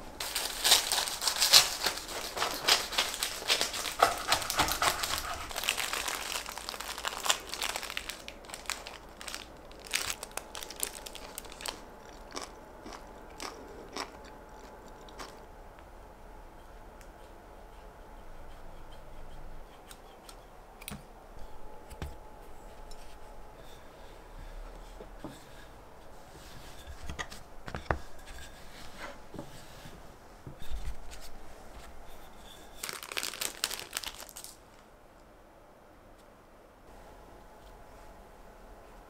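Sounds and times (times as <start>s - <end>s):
dense crinkly rustle: 0.0s - 11.9s, 28.0s - 34.9s
scissors snipping bread crusts: 1.5s - 5.6s.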